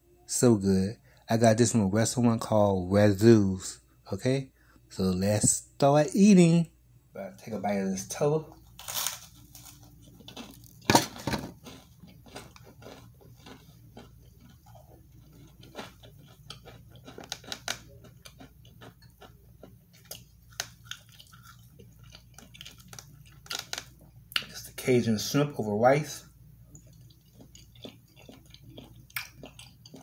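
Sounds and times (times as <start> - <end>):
close-up chewing: 8.8 - 10.9, 11.5 - 24.5, 26.6 - 30.0.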